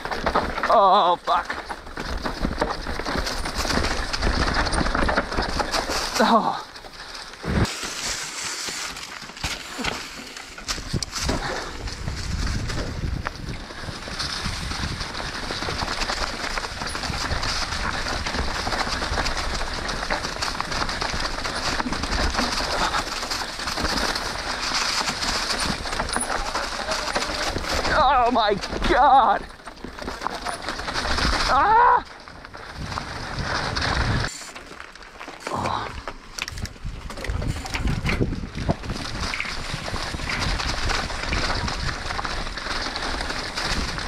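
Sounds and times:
bike rattling over bumps: 0:00.0 - 0:44.0
tyres rolling over dirt: 0:00.0 - 0:44.0
wind rushing over microphone: 0:10.8 - 0:16.0.

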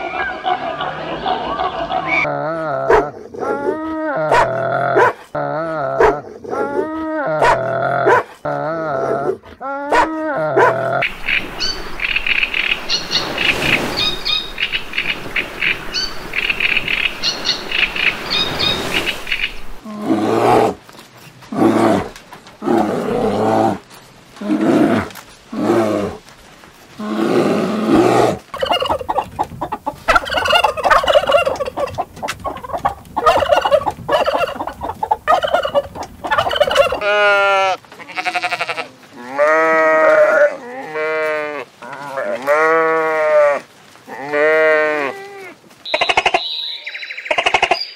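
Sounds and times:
gulls calling: 0:10.6 - 0:19.8, 0:28.5 - 0:37.1
surf washing: 0:11.0 - 0:19.9
turkey gobbling: 0:28.5 - 0:37.0, 0:45.9 - 0:47.8.

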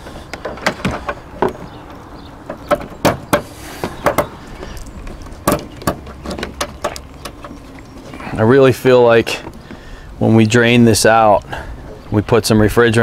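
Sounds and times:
hose couplers clicking: 0:00.3 - 0:07.9.

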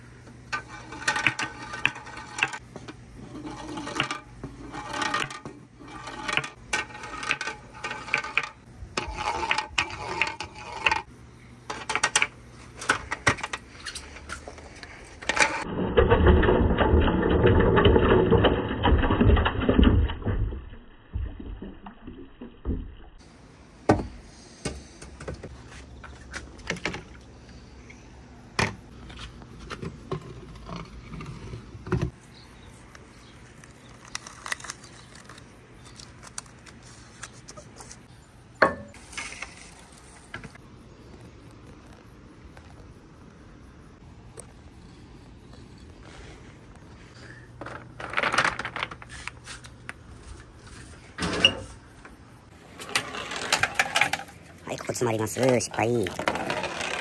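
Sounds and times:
marbles rattling: 0:52.8 - 0:57.0.

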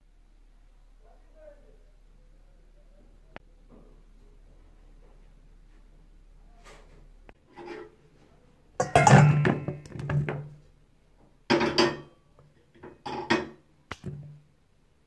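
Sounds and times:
potato slices clattering in metal bowl: 0:08.8 - 0:10.4.

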